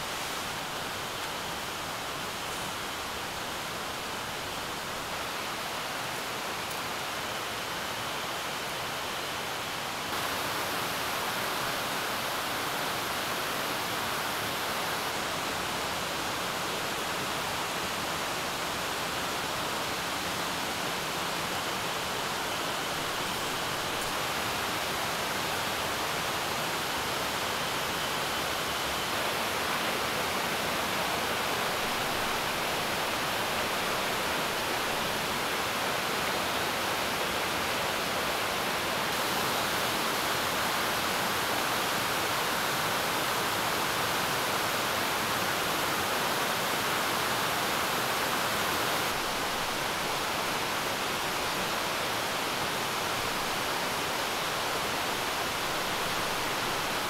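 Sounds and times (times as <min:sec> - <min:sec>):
stream flowing over rocks: 0:00.0 - 0:57.0.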